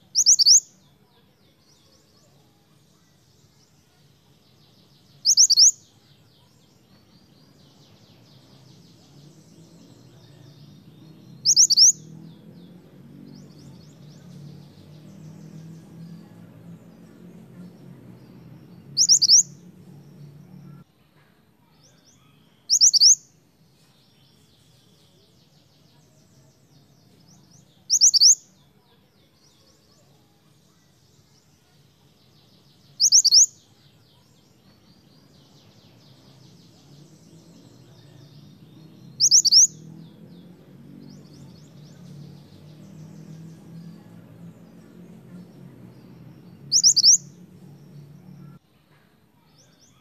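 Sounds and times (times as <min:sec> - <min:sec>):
faint high bird twittering: 0:00.0 - 0:20.8, 0:21.6 - 0:48.6
bird giving sharp whistled calls: 0:00.1 - 0:00.6, 0:05.3 - 0:05.8, 0:11.4 - 0:12.0, 0:19.0 - 0:19.5, 0:39.2 - 0:39.7, 0:46.7 - 0:47.2.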